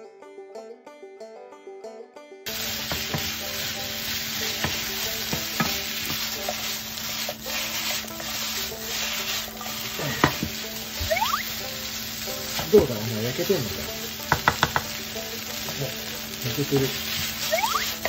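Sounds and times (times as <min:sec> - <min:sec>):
plucked background music: 0:00.0 - 0:18.0
chicken and vegetables sizzling: 0:02.5 - 0:18.0
spatula knocking against pan: 0:02.8 - 0:03.8, 0:04.4 - 0:06.7, 0:10.2 - 0:11.2, 0:14.1 - 0:15.8.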